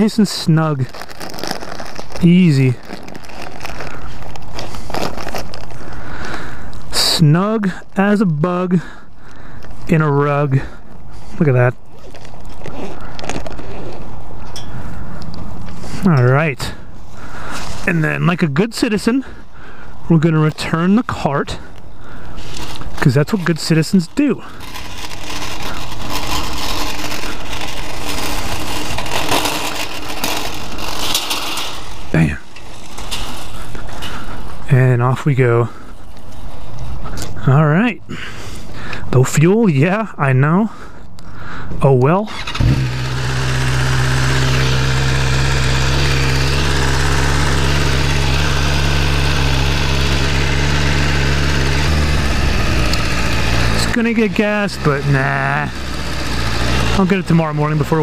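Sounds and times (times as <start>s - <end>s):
motorcycle engine at low revs: 21.6s - 34.3s, 42.3s - 58.0s
shopping cart rattling on asphalt: 22.5s - 34.0s, 51.8s - 58.0s
cart clatter: 22.5s - 34.1s, 42.6s - 58.0s.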